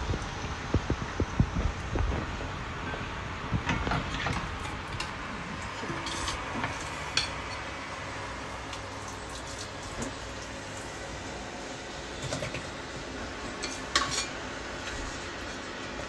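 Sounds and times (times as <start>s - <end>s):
utensils clinking on dishes: 5.7s - 7.7s, 13.6s - 14.4s.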